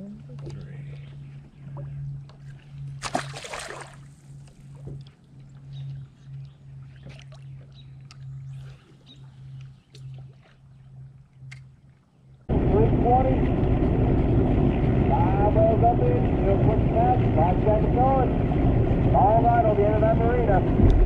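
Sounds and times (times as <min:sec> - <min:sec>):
steady low hum: 0:00.0 - 0:11.8, 0:12.4 - 0:21.0
fish splashing into water: 0:03.0 - 0:04.0.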